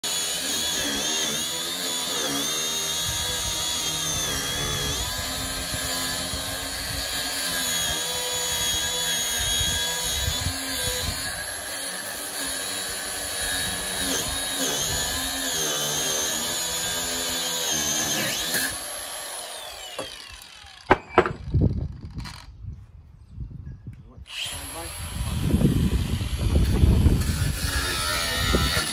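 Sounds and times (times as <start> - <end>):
angle grinder cutting steel: 0.0 - 21.4, 24.3 - 28.9
sharp knocks: 20.9 - 21.4.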